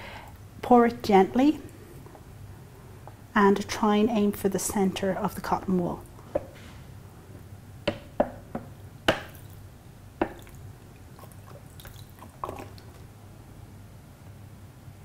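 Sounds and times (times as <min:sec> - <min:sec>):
water dripping into glass beaker: 0:11.2 - 0:13.0.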